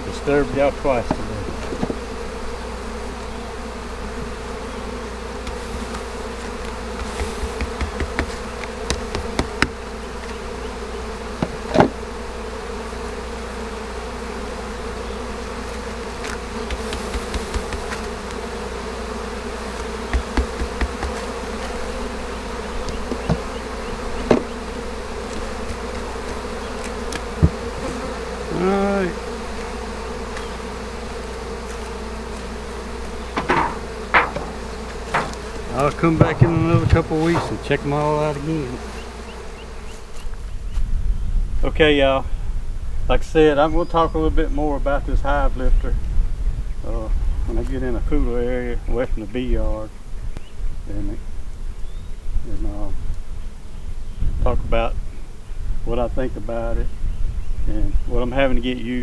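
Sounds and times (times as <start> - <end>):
honeybees humming: 0.0 - 59.0
loud bee buzz: 0.0 - 59.0
wooden hive frames knocking: 0.6 - 2.3, 5.2 - 10.6, 11.3 - 12.0, 16.2 - 18.6, 19.4 - 28.2, 29.1 - 39.6.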